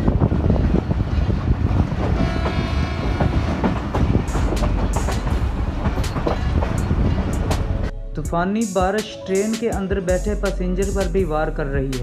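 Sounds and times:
train rumbling along track: 0.0s - 7.9s.

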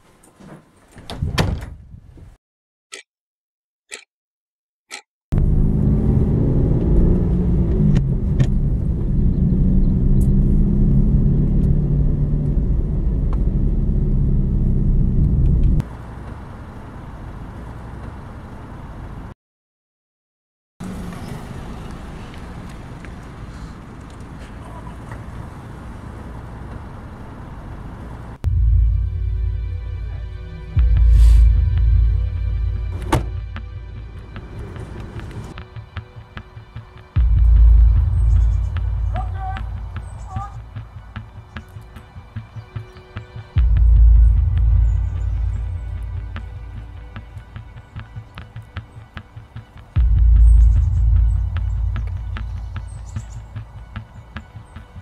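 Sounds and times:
engine and road rumble: 4.9s - 19.4s, 20.8s - 55.0s.

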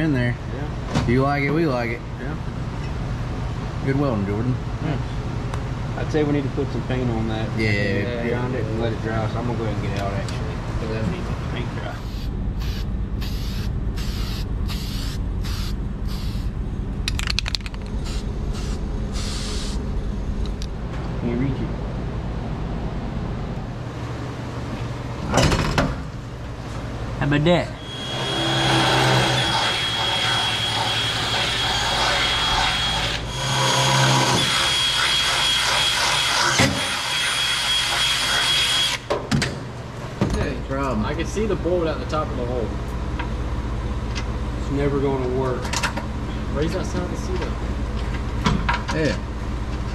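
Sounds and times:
spray can hissing: 12.6s - 16.5s
cordless drill motor running: 27.8s - 35.0s.

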